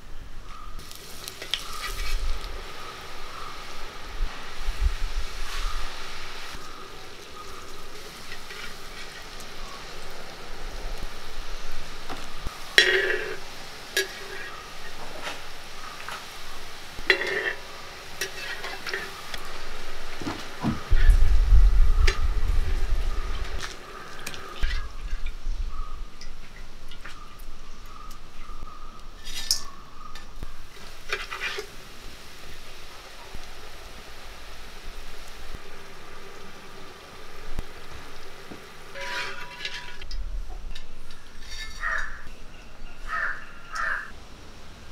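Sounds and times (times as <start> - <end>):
dough sizzling in hot oil: 0.8 - 40.1
metal spoon scraping a pan: 8.2 - 9.4, 12.7 - 16.2, 17.0 - 19.5, 29.2 - 31.7, 38.9 - 42.4.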